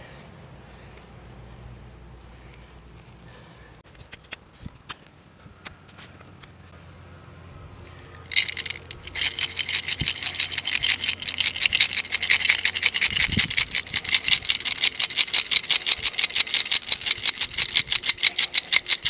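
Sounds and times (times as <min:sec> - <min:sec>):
coins clinking in a clay pot: 0:08.3 - 0:19.0.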